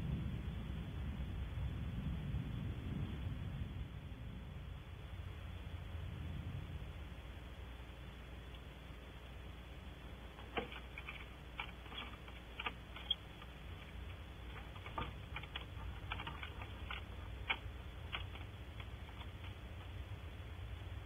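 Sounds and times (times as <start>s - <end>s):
low hum: 0.0s - 21.0s
irregular sharp clicks: 10.3s - 20.0s.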